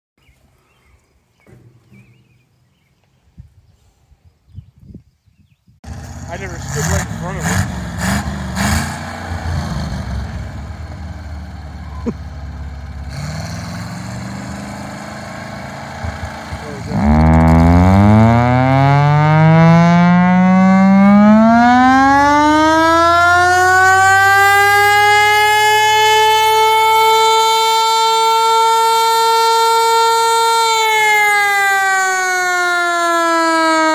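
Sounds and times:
engine running: 5.8 - 30.9
siren wailing upward in pitch: 15.8 - 33.9.

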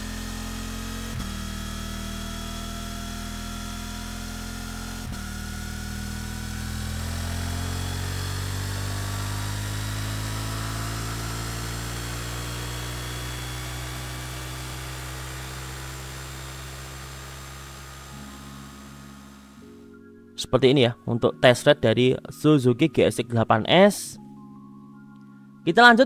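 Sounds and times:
motorcycle engine revving down: 0.0 - 19.7.

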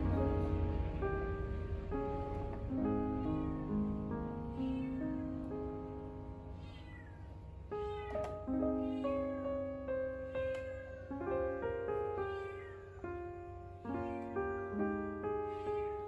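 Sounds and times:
soft piano music: 0.0 - 16.0
cat meowing: 3.0 - 3.8, 4.4 - 14.8, 15.4 - 16.0.

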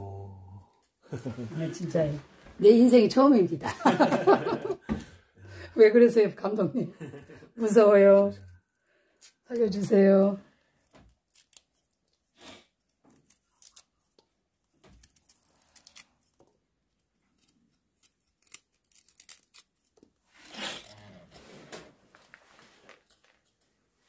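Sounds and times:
knife scraping root skin: 10.8 - 14.0, 15.0 - 16.4, 17.3 - 21.0.

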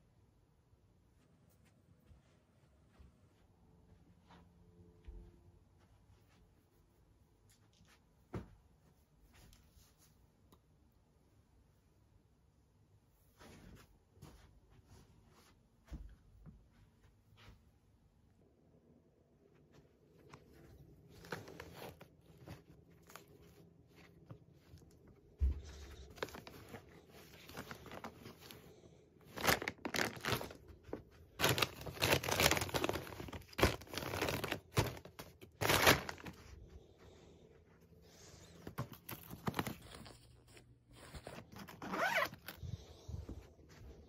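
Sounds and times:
clothes rustling: 13.2 - 17.9, 19.6 - 44.0
plastic bags crinkling: 26.0 - 28.6, 29.2 - 36.5, 38.6 - 42.7.

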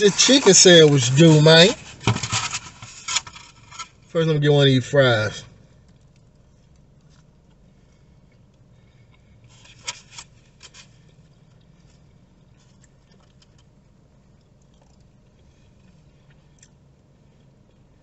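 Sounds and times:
food handling clicks and scrapes: 0.0 - 4.0
low steady hum: 0.0 - 18.0
person chewing: 11.4 - 17.9.

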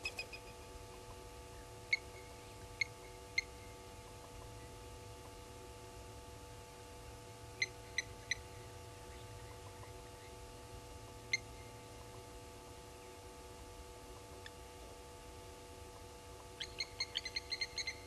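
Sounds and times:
faint steady hum: 0.0 - 18.0
bird metallic tink calls: 16.6 - 18.0.

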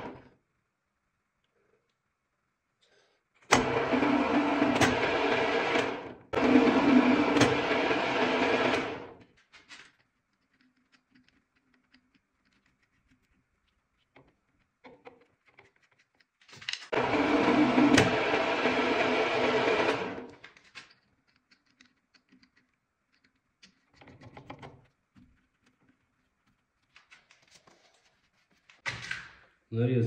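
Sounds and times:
lathe motor humming: 3.5 - 9.2, 16.9 - 20.4
faint clicks and handling: 9.2 - 16.9, 20.4 - 29.3.

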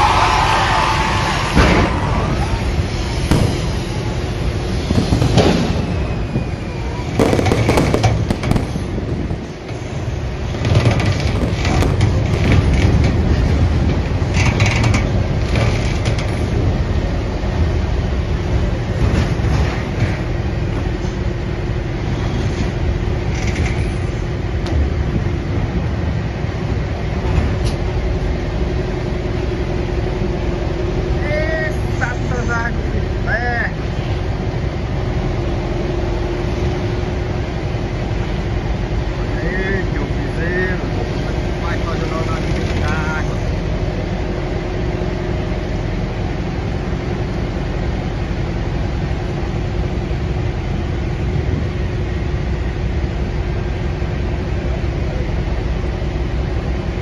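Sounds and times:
boat engine humming: 0.0 - 57.0
wind buffeting microphone: 1.8 - 31.2, 42.4 - 57.0.

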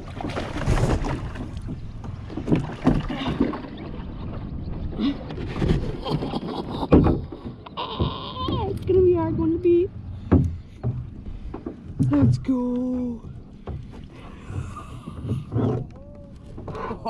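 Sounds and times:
water around a kayak: 0.0 - 17.0
wind rumbling on microphone: 0.0 - 17.0
sharp knocks: 10.2 - 12.4.

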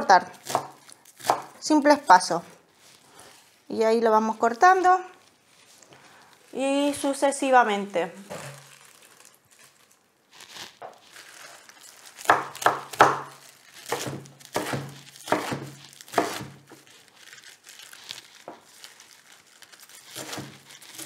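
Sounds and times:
knife chopping on wooden board: 0.5 - 1.6, 12.3 - 16.6.

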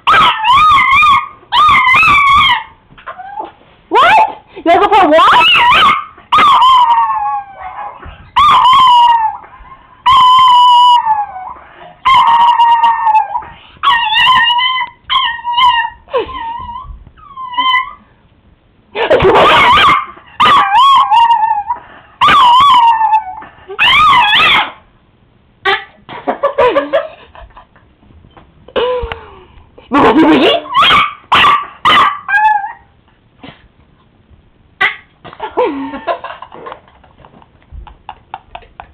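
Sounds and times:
small dog howling: 0.0 - 4.3, 5.3 - 18.0, 19.4 - 24.8, 30.7 - 32.9.

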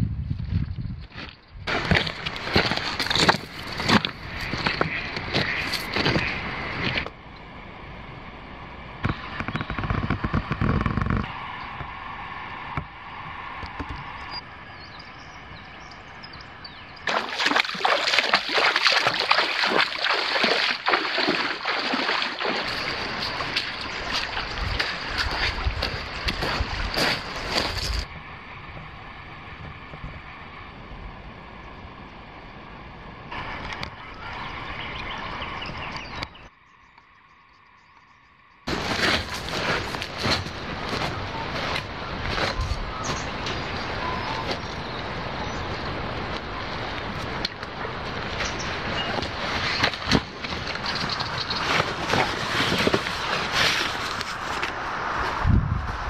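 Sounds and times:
footsteps crunching on stones: 0.4 - 7.1, 17.1 - 28.1, 38.7 - 54.8
bare feet splashing through water: 1.7 - 7.1, 17.0 - 28.1, 38.7 - 55.4.

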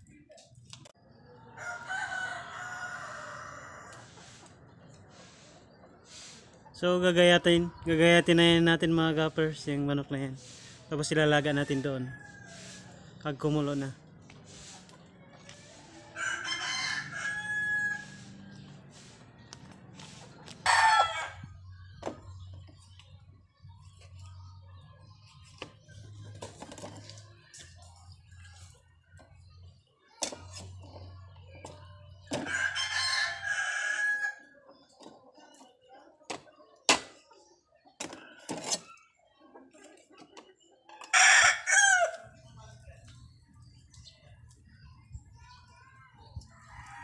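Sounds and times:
rooster crowing: 1.4 - 4.1, 11.5 - 12.9, 16.2 - 18.4, 41.1 - 42.2.

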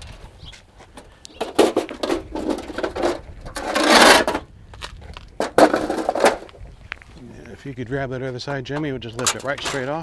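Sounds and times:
metal panel scrape: 1.4 - 4.5, 5.4 - 6.5.

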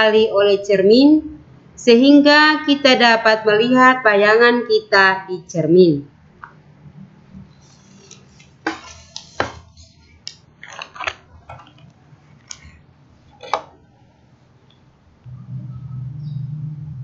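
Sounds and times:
faint low hum: 5.6 - 17.0.

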